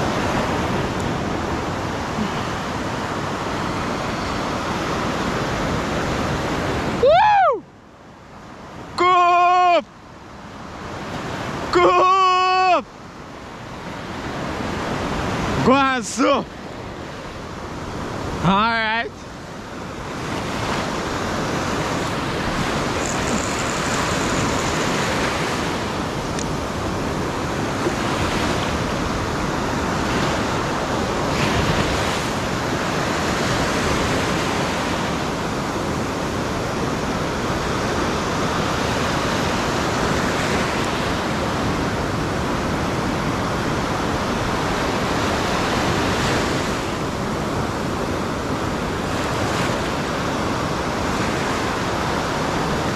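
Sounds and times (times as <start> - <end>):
sea surf rushing: 0.0 - 52.9.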